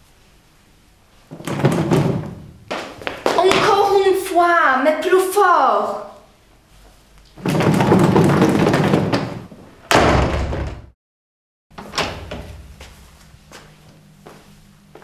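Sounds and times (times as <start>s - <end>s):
heavy thud: 7.4s - 11.0s.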